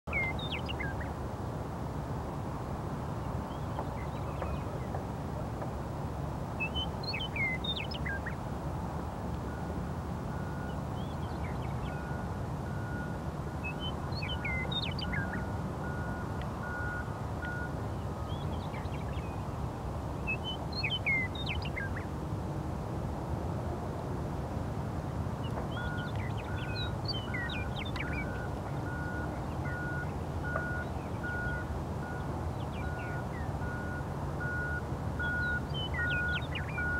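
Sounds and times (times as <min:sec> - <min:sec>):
meadowlarks singing: 0:00.1 - 0:01.2, 0:03.2 - 0:05.0, 0:06.6 - 0:08.4, 0:10.6 - 0:12.3, 0:13.6 - 0:15.5, 0:17.4 - 0:19.6, 0:20.2 - 0:22.1, 0:25.4 - 0:33.8, 0:35.2 - 0:36.9
reversing beeper: 0:11.9 - 0:17.7, 0:27.3 - 0:32.2, 0:32.8 - 0:36.9.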